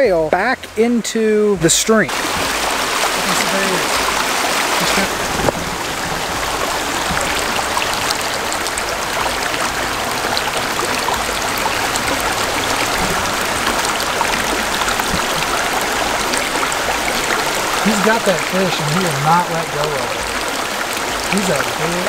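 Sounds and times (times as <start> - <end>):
stream water rushing: 0.0 - 22.0.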